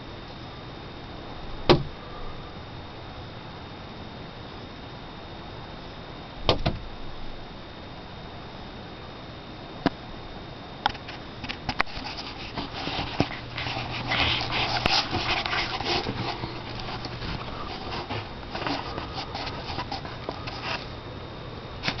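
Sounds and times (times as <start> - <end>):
camera handling rustling: 10.9 - 20.9.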